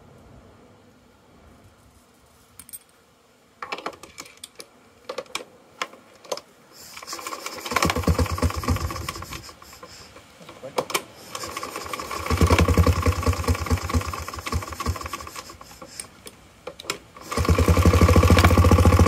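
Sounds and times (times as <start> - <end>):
engine turning over clatter: 7.0 - 10.0, 11.3 - 15.8, 17.2 - 19.0.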